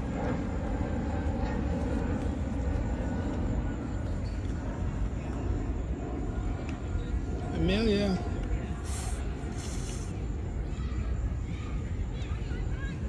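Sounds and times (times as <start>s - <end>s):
jet airplane flying over: 0.0s - 13.0s.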